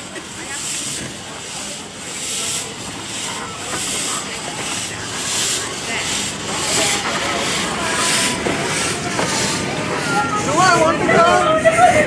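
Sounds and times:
coaches rumbling on rails: 0:00.0 - 0:12.0
steam locomotive chuffing: 0:00.0 - 0:12.0.

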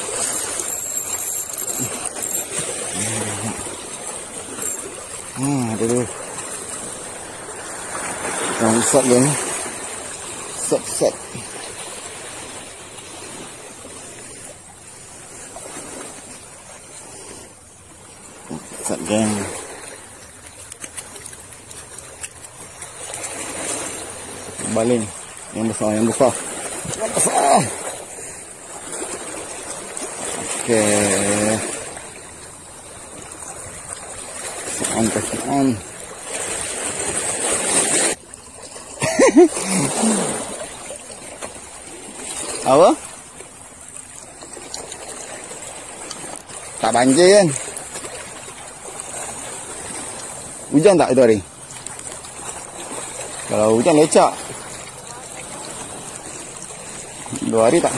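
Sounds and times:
small waves washing against rocks: 0:00.0 - 0:57.9
wind: 0:00.0 - 0:57.9
person's voice: 0:03.0 - 0:03.6, 0:05.4 - 0:06.1, 0:24.6 - 0:27.7.

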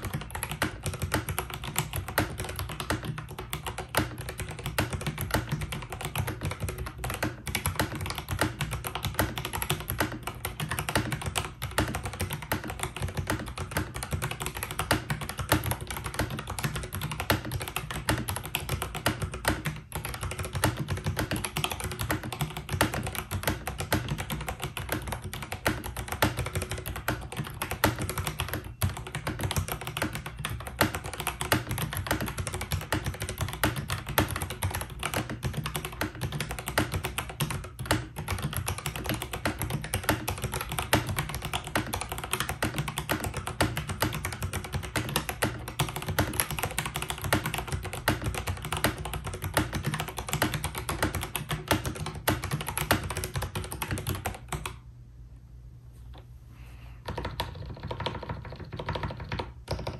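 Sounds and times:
mechanical keyboard typing: 0:00.0 - 0:54.8, 0:57.0 - 0:59.9.

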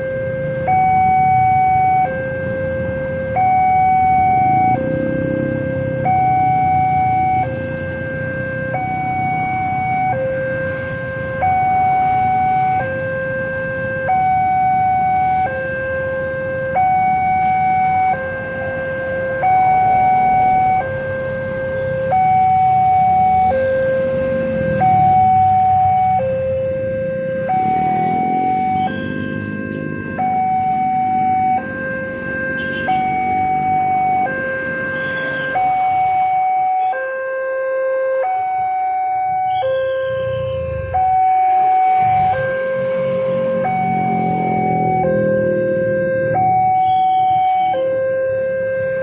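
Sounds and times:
motorbikes and cars passing: 0:00.0 - 0:49.0
two-tone crossing alarm: 0:00.0 - 0:49.0.

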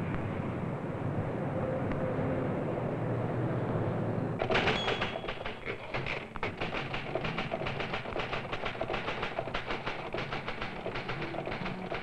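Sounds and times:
rapid even clicking: 0:04.4 - 0:12.0.

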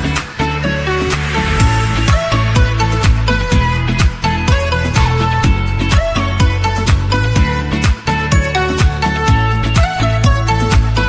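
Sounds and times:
upbeat music with kick drums: 0:00.0 - 0:11.0.

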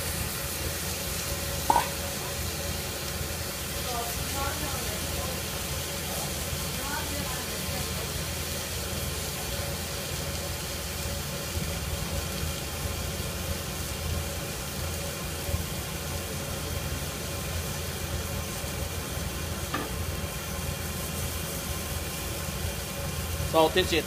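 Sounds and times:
steak sizzling in a pan: 0:00.0 - 0:24.0.

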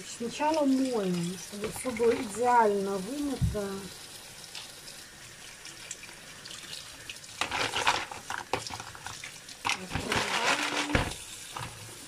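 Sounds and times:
tap water running: 0:00.0 - 0:12.0
wooden brush scrubbing mussels: 0:00.3 - 0:03.8, 0:07.4 - 0:12.0
water splashing: 0:00.4 - 0:04.8.

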